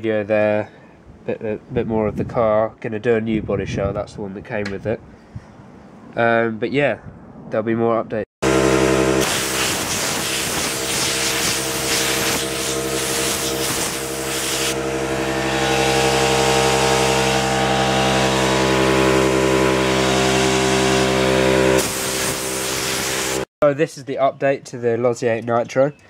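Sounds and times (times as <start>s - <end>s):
air compressor humming: 8.4s - 23.5s
blow gun blasting air: 8.4s - 23.5s.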